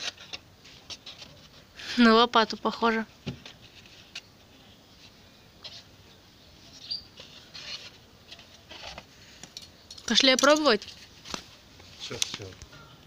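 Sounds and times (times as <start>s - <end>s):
plastic dustpan rustling and tapping: 10.4s - 12.6s.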